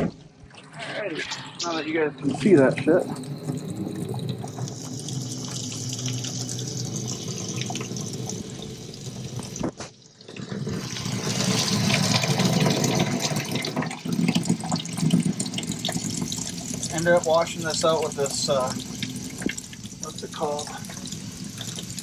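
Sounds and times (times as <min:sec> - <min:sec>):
running water splashing: 0:00.5 - 0:22.0.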